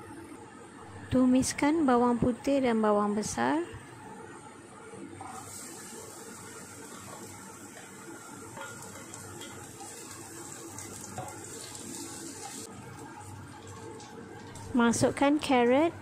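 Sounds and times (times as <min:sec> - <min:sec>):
garlic and onion sizzling in oil: 0:05.1 - 0:16.0.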